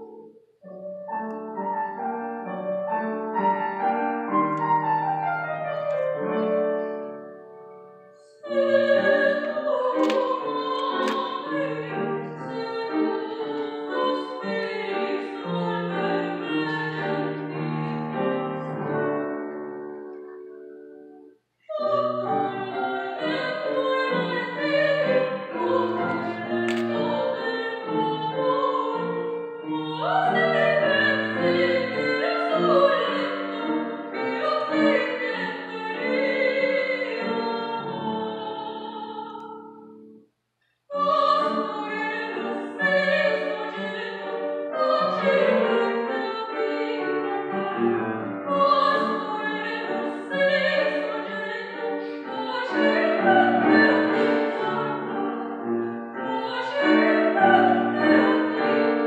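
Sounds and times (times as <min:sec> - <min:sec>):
grand piano: 0:00.0 - 0:40.3, 0:40.9 - 0:59.0
woman singing operatically: 0:08.4 - 0:17.7, 0:21.7 - 0:39.7, 0:40.9 - 0:47.8, 0:48.4 - 0:55.6, 0:56.2 - 0:59.0.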